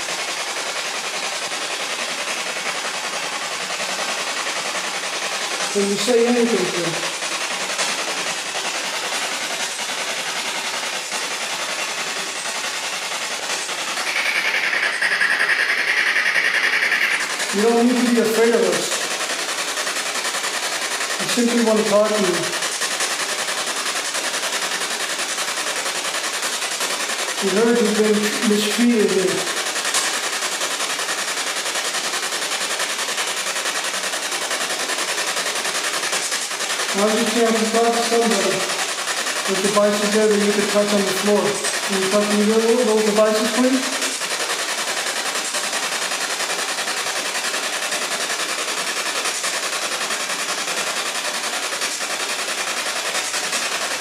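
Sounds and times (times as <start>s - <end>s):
fluttering electronic static hiss: 4.4s - 20.4s, 27.4s - 47.4s
pulsing high whining tone: 13.6s - 19.1s.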